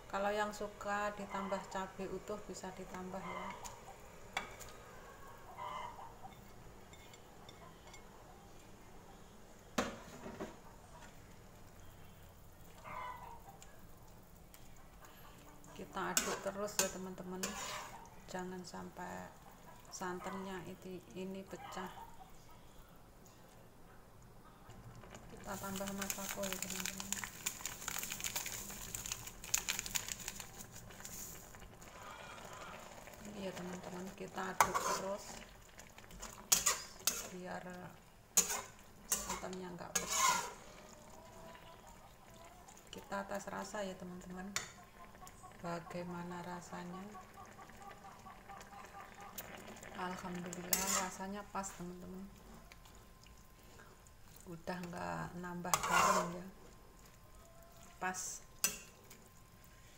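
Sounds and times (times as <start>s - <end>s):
faint steady hiss: 0.0s - 59.9s
plastic sachet crinkling: 25.4s - 31.6s.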